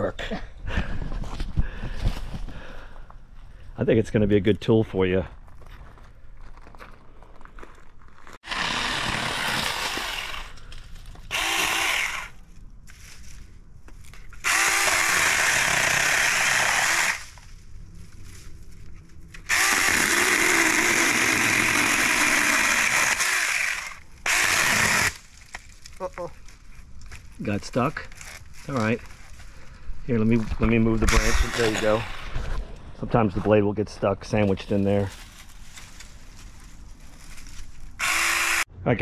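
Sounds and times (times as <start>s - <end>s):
mini chainsaw motor whining: 8.4s - 10.5s, 11.3s - 12.4s, 14.4s - 17.2s, 19.5s - 25.2s, 38.0s - 38.7s.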